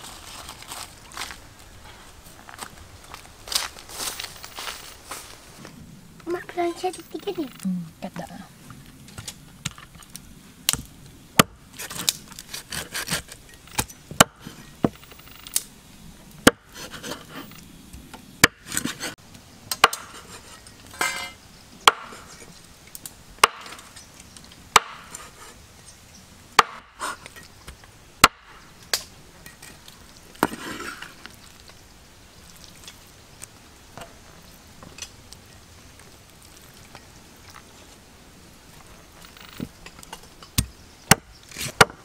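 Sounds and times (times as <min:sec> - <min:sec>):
rustling and handling: 0:00.0 - 0:10.2
cleaver chopping on wooden block: 0:21.9 - 0:22.2, 0:23.4 - 0:23.8, 0:24.8 - 0:25.1, 0:26.6 - 0:26.9, 0:40.6 - 0:42.0.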